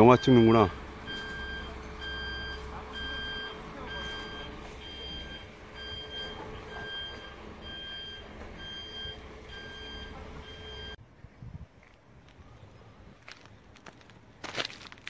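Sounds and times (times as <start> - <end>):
reversing alarm beeping: 0.0 - 11.0
low engine rumble: 0.0 - 15.0.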